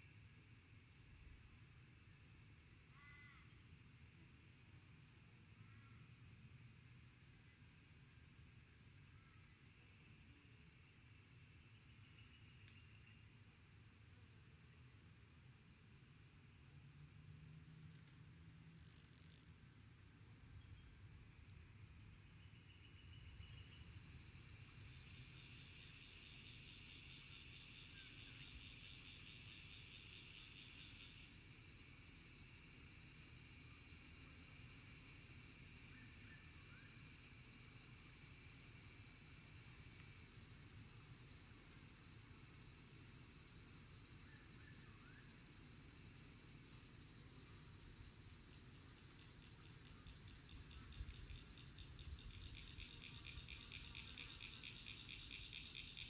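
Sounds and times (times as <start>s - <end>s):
insects trilling: 18.8s - 19.5s, 22.2s - 56.0s.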